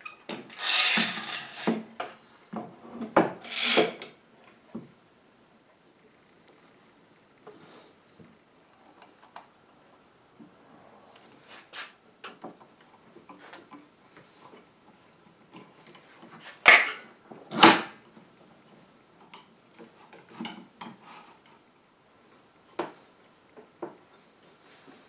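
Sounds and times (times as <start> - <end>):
metal clamps clicking and rattling: 0.5 - 1.9, 3.4 - 4.1.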